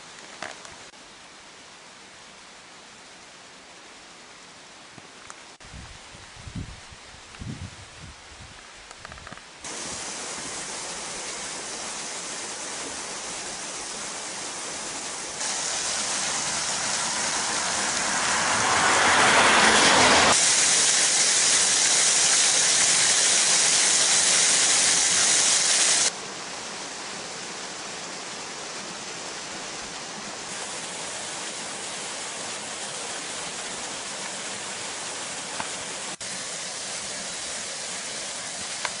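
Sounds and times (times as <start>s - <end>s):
waterfall rushing: 9.6s - 39.0s.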